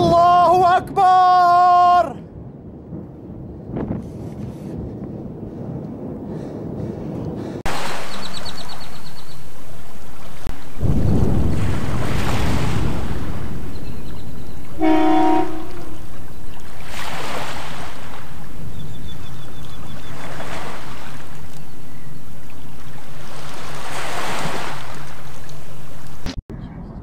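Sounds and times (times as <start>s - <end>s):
heavy low rumble of explosion: 1.8s - 7.7s, 10.8s - 14.7s
brief horn-like tone: 14.8s - 16.0s.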